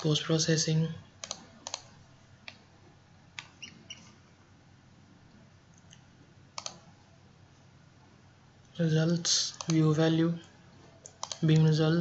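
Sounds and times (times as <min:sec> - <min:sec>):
computer mouse clicks: 0:01.2 - 0:02.6, 0:05.7 - 0:06.8, 0:09.5 - 0:09.8, 0:11.0 - 0:11.7.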